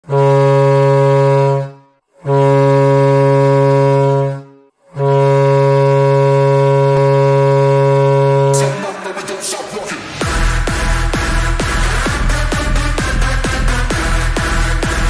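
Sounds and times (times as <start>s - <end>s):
goal horn blasts: 0.0s - 9.1s.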